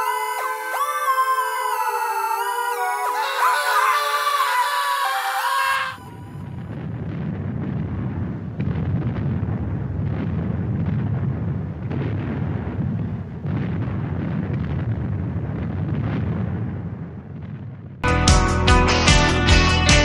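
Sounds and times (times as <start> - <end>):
low rough rumbling: 6.2 - 18.0.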